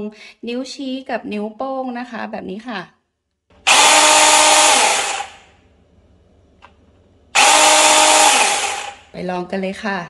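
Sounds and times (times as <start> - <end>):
cordless chainsaw whining: 3.6 - 5.5, 7.4 - 9.1.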